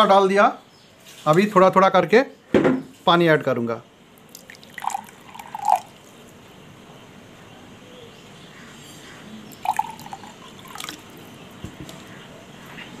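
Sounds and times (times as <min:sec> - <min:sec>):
splashy drips: 0:04.2 - 0:06.2, 0:09.6 - 0:11.2
water pouring into glass: 0:04.3 - 0:06.1, 0:09.5 - 0:11.2.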